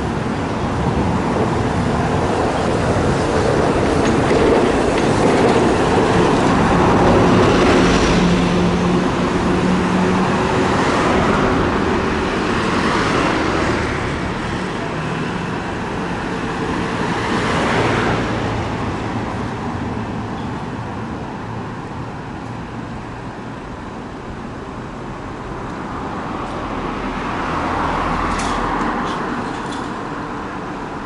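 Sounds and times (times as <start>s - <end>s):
bus and cars passing: 0.0s - 31.0s
streetcars running on tracks: 0.0s - 31.0s.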